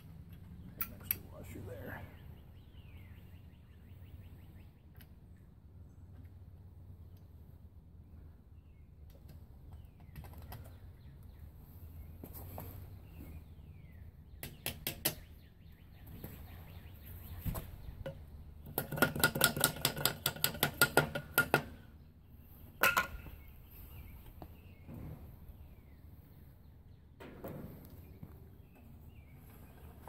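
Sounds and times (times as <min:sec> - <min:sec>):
wooden block knocking on hubcap: 0:18.7 - 0:21.7.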